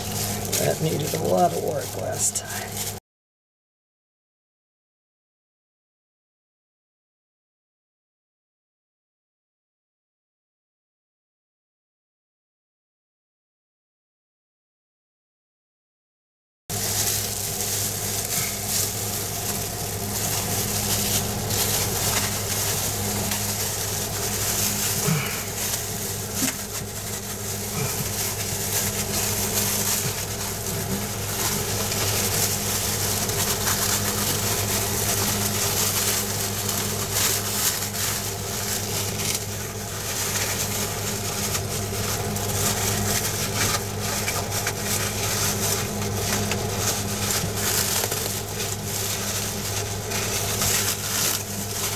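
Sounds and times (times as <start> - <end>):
fiberglass cloth crinkling: 0.0 - 3.0, 16.7 - 51.9
steady low hum: 0.0 - 3.0, 16.7 - 51.9.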